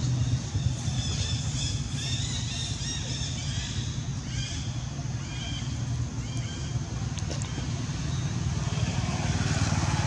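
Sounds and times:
high chirping calls: 0.0s - 6.8s.

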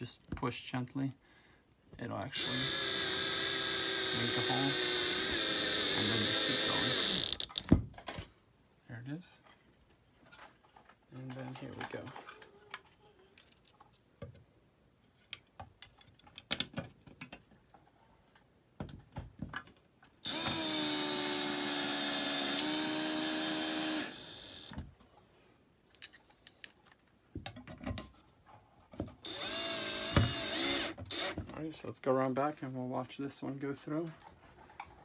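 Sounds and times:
cordless drill whining: 2.2s - 7.7s, 20.2s - 24.8s, 29.1s - 31.4s
clicks and taps of drill bit: 20.3s - 24.7s, 29.0s - 31.4s.

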